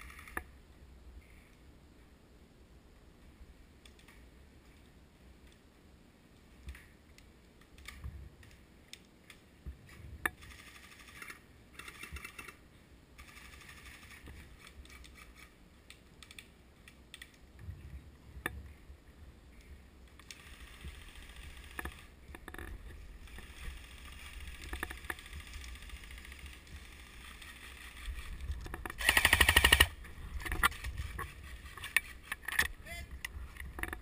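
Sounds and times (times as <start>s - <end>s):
faint airsoft guns firing: 29.0s - 29.9s.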